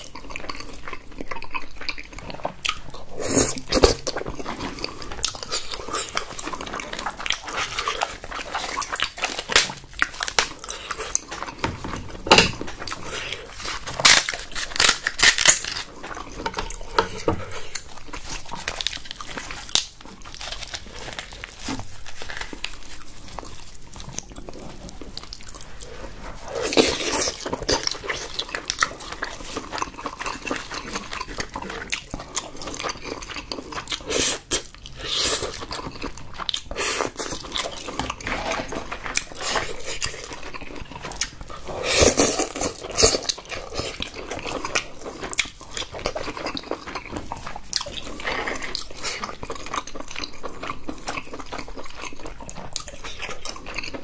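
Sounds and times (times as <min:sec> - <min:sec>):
wet chewing: 0:00.0 - 0:54.0
crab shell cracking and tearing: 0:07.0 - 0:11.7, 0:12.3 - 0:17.0, 0:18.5 - 0:22.8.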